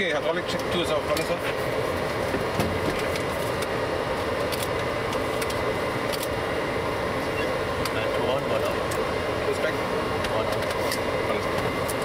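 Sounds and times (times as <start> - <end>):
aircraft engines in cockpit: 0.0 - 12.0.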